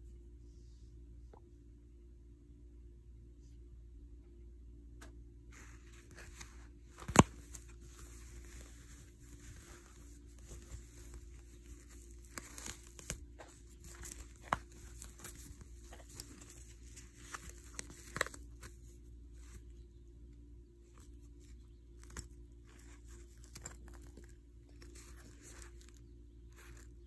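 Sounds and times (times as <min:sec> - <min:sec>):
low steady hum: 0:00.0 - 0:27.0
crinkling rustling handling noise: 0:05.5 - 0:20.0, 0:20.8 - 0:27.0.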